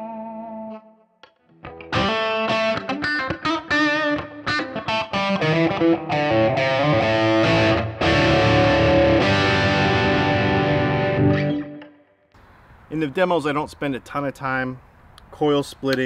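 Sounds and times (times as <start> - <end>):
overdriven electric guitar: 0.0 - 12.0.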